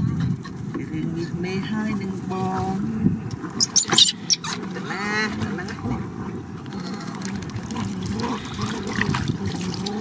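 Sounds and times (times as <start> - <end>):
baby monkey squealing: 3.6 - 4.6.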